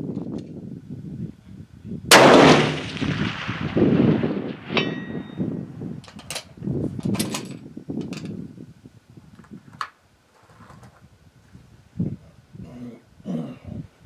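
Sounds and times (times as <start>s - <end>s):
steel target ringing: 2.1s - 6.0s.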